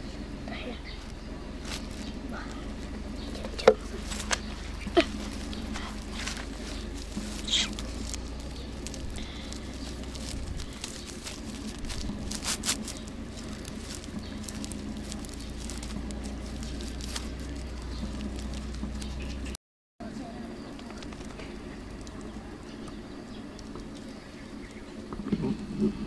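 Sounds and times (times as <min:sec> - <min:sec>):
steady low hum: 0:00.0 - 0:26.0
plastic strap crinkling: 0:01.0 - 0:19.5.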